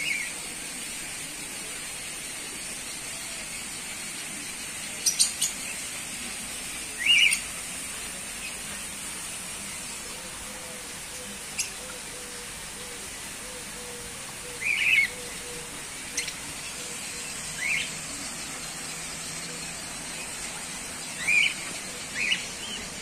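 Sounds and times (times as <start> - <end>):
steady high hiss: 0.0 - 23.0
small parrots calling: 13.6 - 16.4.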